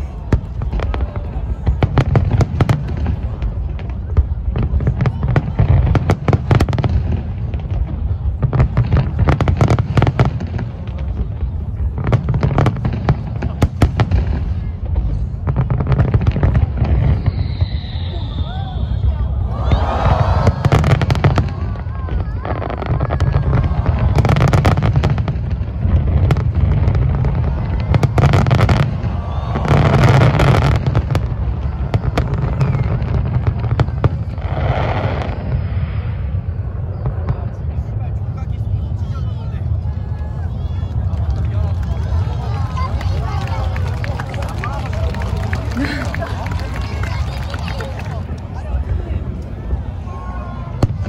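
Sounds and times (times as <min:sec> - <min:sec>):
fireworks bursting: 0:00.0 - 0:38.3
distant explosions rumbling: 0:20.0 - 0:38.3.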